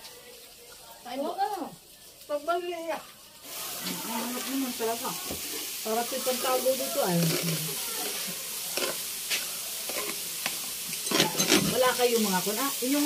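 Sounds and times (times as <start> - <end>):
meat sizzling on grill: 0.0 - 13.0
metal tongs scraping: 7.2 - 10.2, 11.0 - 11.9.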